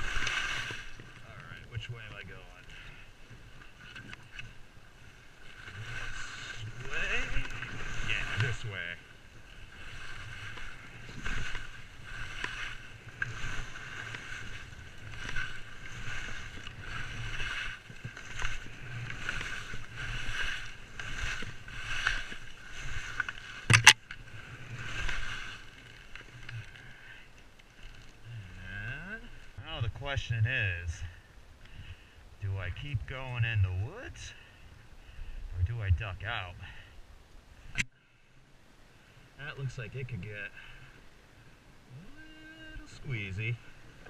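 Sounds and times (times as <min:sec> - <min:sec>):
skis swishing through snow: 0:00.0 - 0:02.6, 0:04.5 - 0:27.1.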